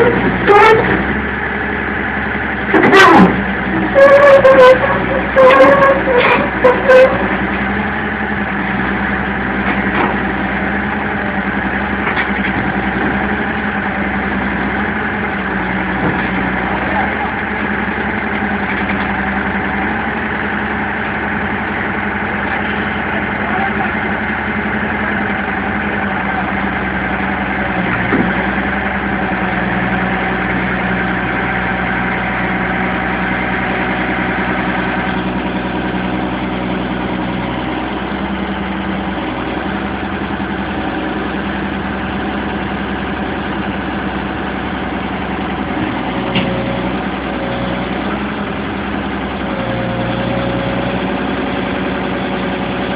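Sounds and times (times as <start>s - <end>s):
excavator diesel engine running: 0.0s - 52.9s.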